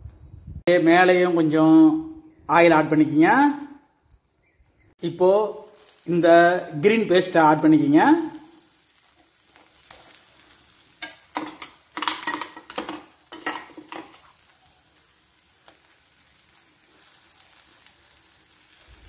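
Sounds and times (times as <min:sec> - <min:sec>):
faint sizzle of frying in oil: 0:03.1 - 0:19.0
spoon scraping on pan: 0:09.0 - 0:14.5.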